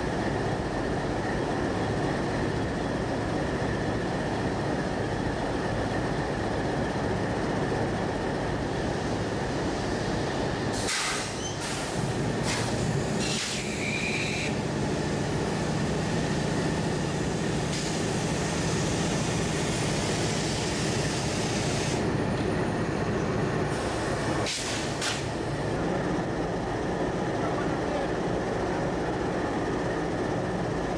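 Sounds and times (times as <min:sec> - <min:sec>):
diesel locomotive engines running: 0:00.0 - 0:30.9
high-pitched squeals and hisses: 0:13.2 - 0:14.6.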